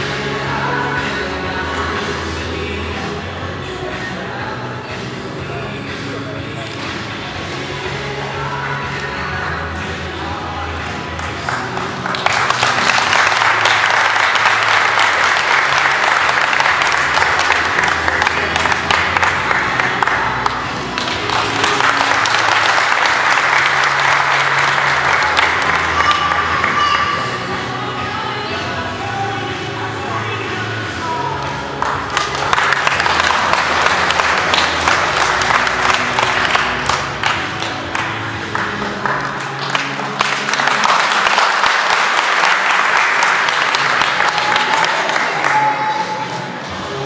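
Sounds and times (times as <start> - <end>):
music: 0.0 - 47.0
audience applause: 11.2 - 27.0, 31.8 - 45.8.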